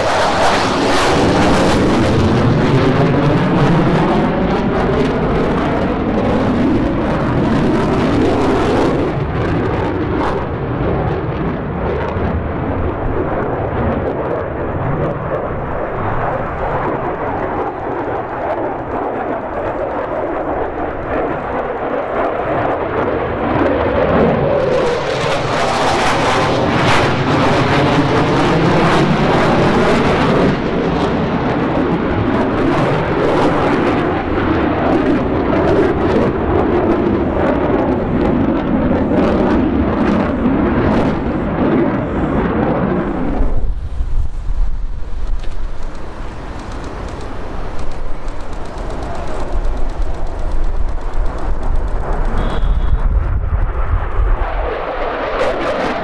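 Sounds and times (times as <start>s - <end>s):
jet roar flying overhead: 0.0s - 56.0s.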